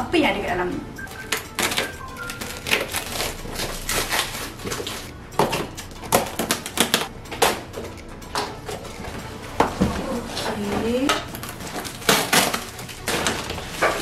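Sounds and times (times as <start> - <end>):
plastic wrapping rustling and tearing: 1.1 - 7.1, 10.0 - 14.0
packing tape being slit: 1.2 - 5.1, 5.7 - 7.6, 11.3 - 14.0.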